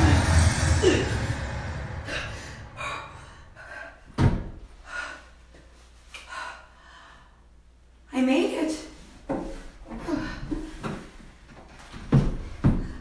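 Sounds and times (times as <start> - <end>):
rushing noise: 0.0 - 3.9.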